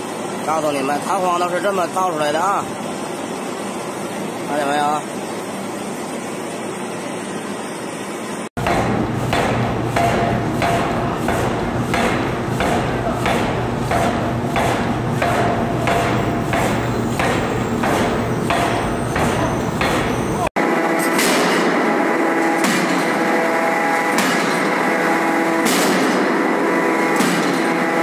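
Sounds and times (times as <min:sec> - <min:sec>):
machine hum: 0:00.0 - 0:28.0
forging hammer striking steel: 0:08.6 - 0:28.0.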